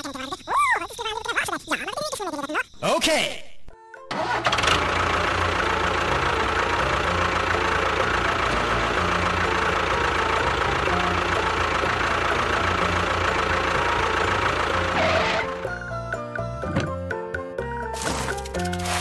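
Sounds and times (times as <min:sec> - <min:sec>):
motor running steadily: 0:04.5 - 0:15.5.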